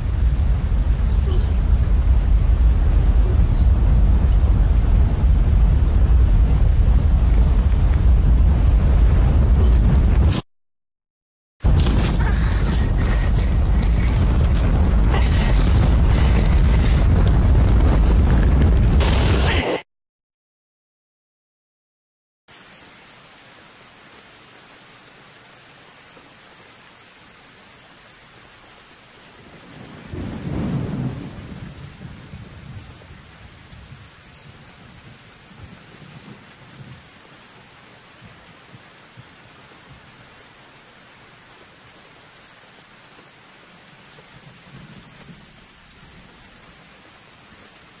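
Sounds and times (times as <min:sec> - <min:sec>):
deep rolling rumble: 0:00.0 - 0:10.3, 0:11.7 - 0:19.3.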